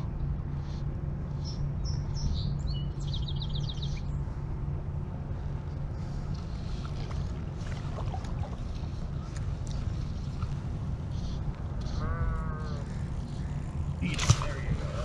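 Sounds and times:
steady low rumble: 0.0 - 15.0
songbird chirping and trilling: 1.3 - 4.3.

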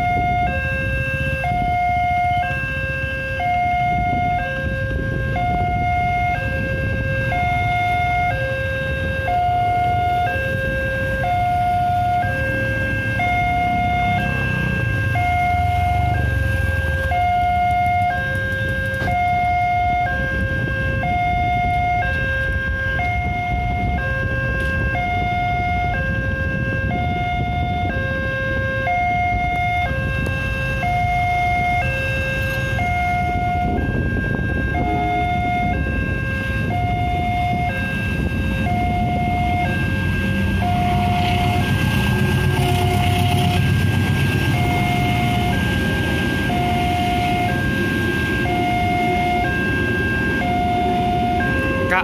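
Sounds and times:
level crossing two-tone alarm: 0.0 - 52.0
car and motorcycle engines idling: 9.6 - 20.3.

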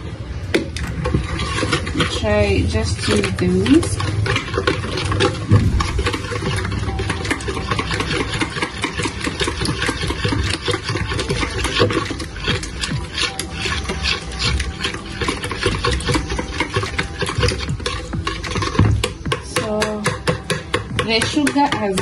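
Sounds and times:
whisk clicking against a bowl: 0.8 - 5.5, 6.4 - 22.0.

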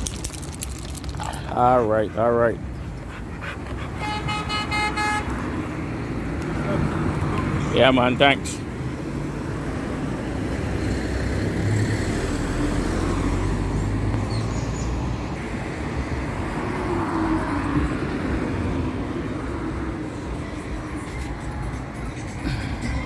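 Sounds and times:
traffic rumble: 0.0 - 23.0
car passing by: 3.6 - 21.4.

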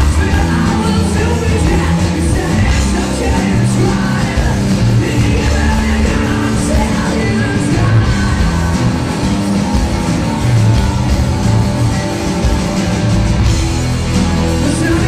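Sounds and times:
person singing: 0.0 - 9.2, 14.5 - 15.0
bass guitar: 0.0 - 15.0
drums: 0.0 - 15.0
electric guitars: 0.0 - 15.0.

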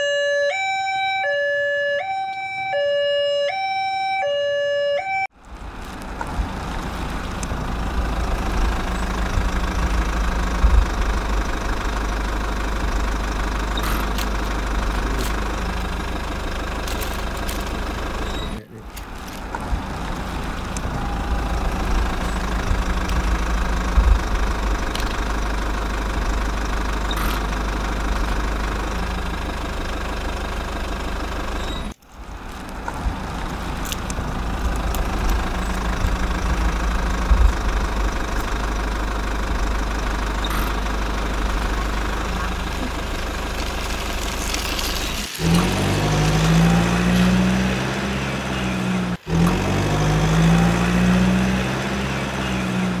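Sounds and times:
level crossing two-tone warning signal: 0.0 - 5.3, 20.8 - 25.5
low vehicle engine rumble: 0.0 - 53.0.

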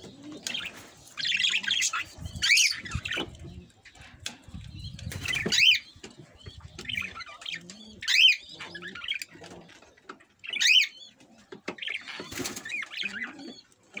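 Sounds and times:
caged birds chattering: 0.0 - 14.0
loud sharp bird calls: 11.8 - 14.0.

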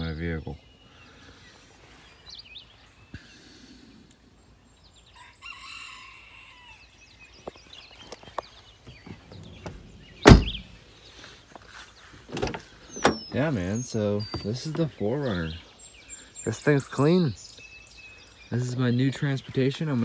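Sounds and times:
small birds chirping: 0.0 - 20.0
rooster crowing: 5.2 - 6.9
car door shutting: 9.3 - 10.8, 12.3 - 13.4.

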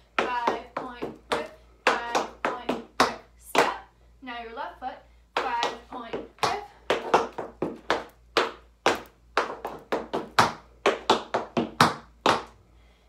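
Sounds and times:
tap shoes on wooden floor: 0.2 - 3.8, 5.4 - 12.6.

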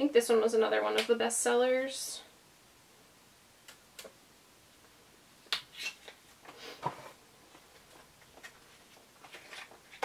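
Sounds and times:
packaging rustles: 6.8 - 10.0.

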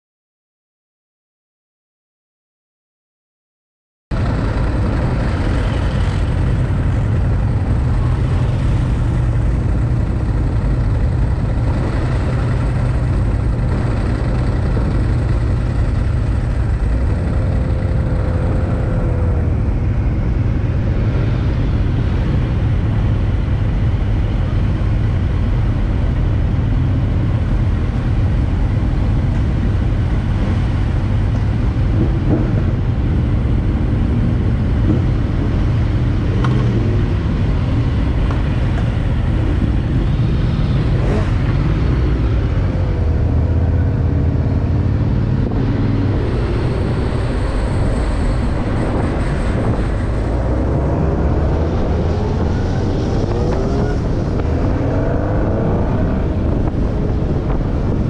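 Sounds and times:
motorcycle engine idling: 4.2 - 18.0
other motorcycles idling: 4.2 - 18.8.

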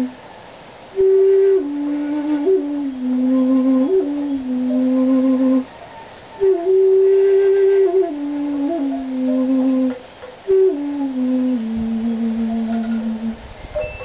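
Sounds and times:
bamboo flute playing low notes: 1.0 - 5.7, 6.4 - 14.0.

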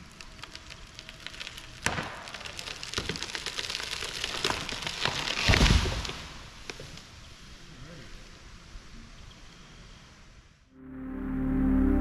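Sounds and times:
branches and leaves rushing: 0.0 - 6.7
wood cracking and snapping: 0.0 - 7.0
tree thudding on ground: 1.8 - 6.4.

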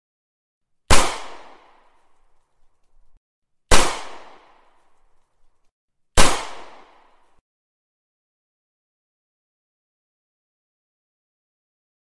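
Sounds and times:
pistol gunshot with echo: 0.9 - 1.9, 3.7 - 4.8, 6.2 - 7.3.

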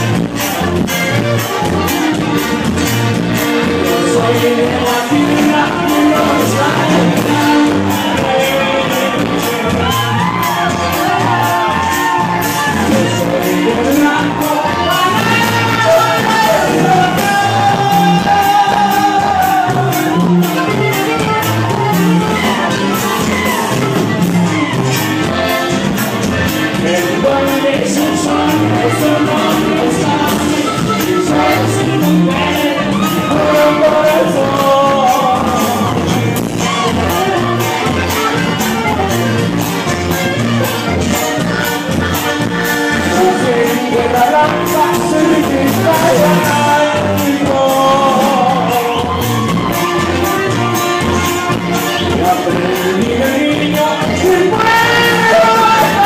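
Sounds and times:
man singing into a microphone: 0.0 - 39.2, 42.5 - 56.0
drum kit beat: 0.0 - 56.0
live band playing: 0.0 - 56.0
crowd shouts: 6.4 - 26.0, 32.5 - 39.2, 48.0 - 51.9, 54.5 - 56.0.

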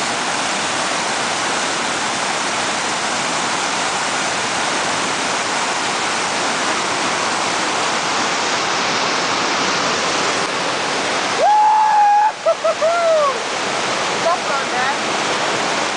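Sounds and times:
whitewater rapid roaring: 0.0 - 15.9
person yelling: 11.4 - 13.4.

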